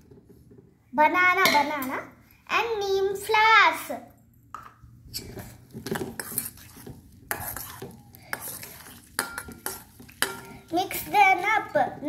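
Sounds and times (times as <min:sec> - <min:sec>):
spoon clinking and scraping bowl: 0:05.2 - 0:11.8.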